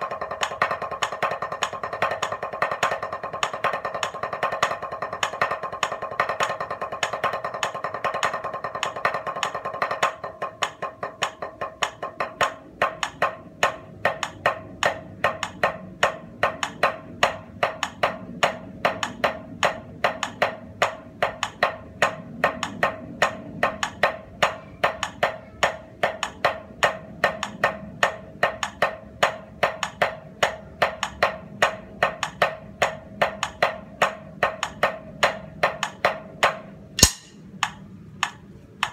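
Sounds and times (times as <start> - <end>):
drum strokes in triplets: 0.0 - 37.5.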